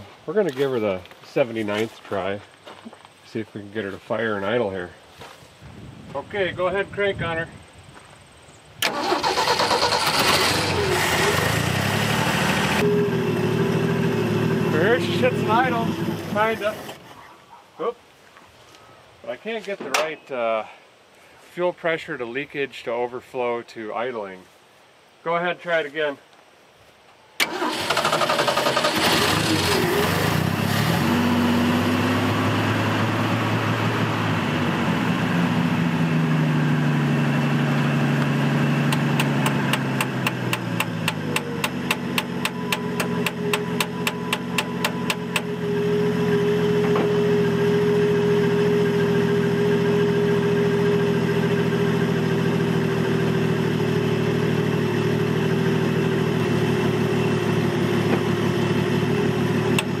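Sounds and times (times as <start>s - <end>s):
regular ticking: 38.9s - 45.5s.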